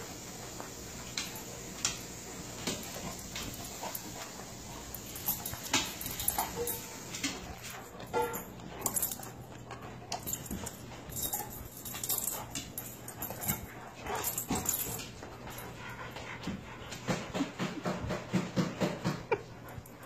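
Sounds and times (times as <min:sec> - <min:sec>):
dogs snapping and scuffling: 0:00.5 - 0:20.0.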